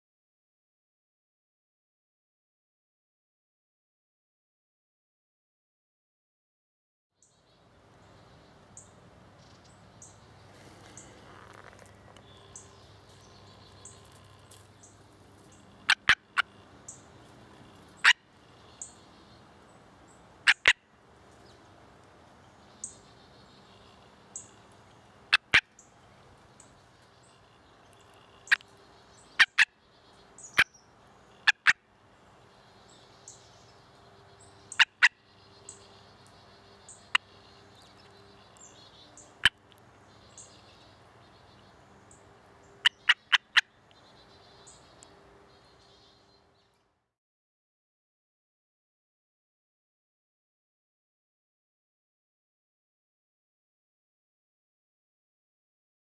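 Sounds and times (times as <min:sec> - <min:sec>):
frog barking calls: 0:13.6 - 0:19.0, 0:20.4 - 0:20.9, 0:25.3 - 0:25.9, 0:29.3 - 0:29.8, 0:31.3 - 0:31.9, 0:34.7 - 0:36.1, 0:36.8 - 0:39.7, 0:42.8 - 0:43.8.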